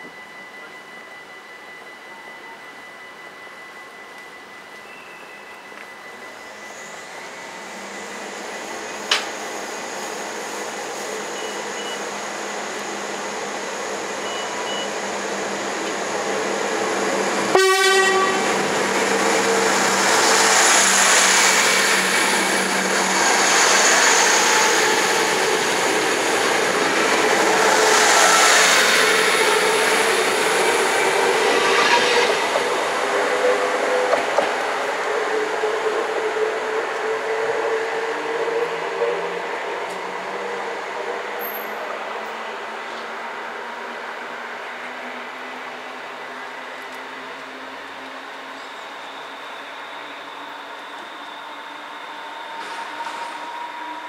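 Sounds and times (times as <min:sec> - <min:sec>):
diesel railcar running: 0:00.0 - 0:54.0
train horn blast: 0:17.5 - 0:18.6, 0:31.5 - 0:32.6.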